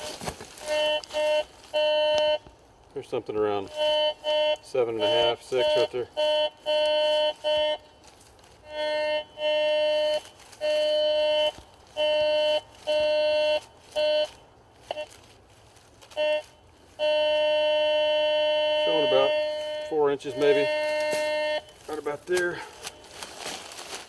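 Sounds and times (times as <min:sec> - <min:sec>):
metal detector target tone: 0:16.2 - 0:22.7.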